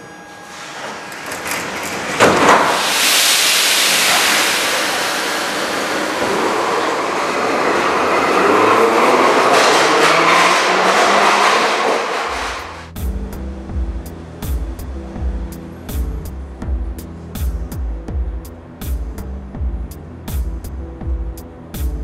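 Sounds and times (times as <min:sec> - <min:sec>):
train wheels and motors rumbling: 0:00.0 - 0:22.0
train doors slamming shut: 0:00.4 - 0:07.0.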